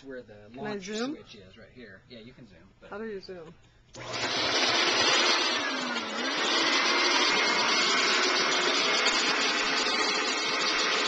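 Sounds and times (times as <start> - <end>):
vacuum cleaner motor rushing: 4.0 - 11.0.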